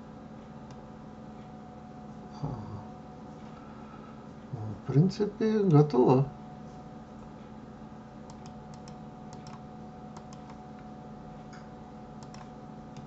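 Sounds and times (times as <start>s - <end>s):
low electrical hum: 0.0s - 13.0s
keyboard and mouse clicks: 8.3s - 9.6s, 10.2s - 10.6s, 12.2s - 13.0s.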